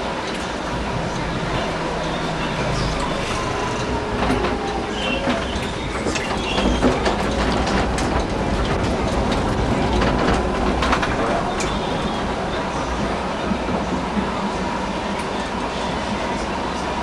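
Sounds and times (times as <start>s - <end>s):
tram rumbling on rails: 0.0s - 17.0s
clatter over rail joints: 0.1s - 14.3s
wheel squeals: 1.6s - 7.8s.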